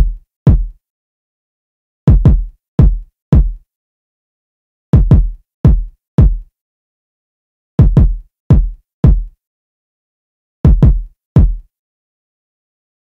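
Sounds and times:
electronic kick drum loop: 0:00.0 - 0:00.8, 0:02.1 - 0:03.6, 0:05.0 - 0:06.5, 0:07.8 - 0:09.4, 0:10.7 - 0:11.7.

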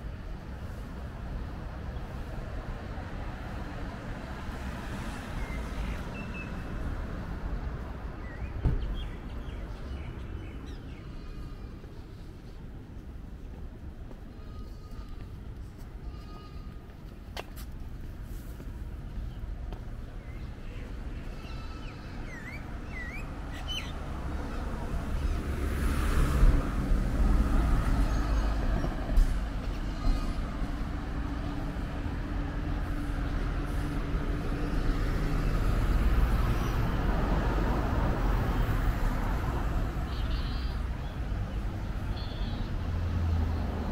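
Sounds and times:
birds chirping: 0:19.2 - 0:24.1.

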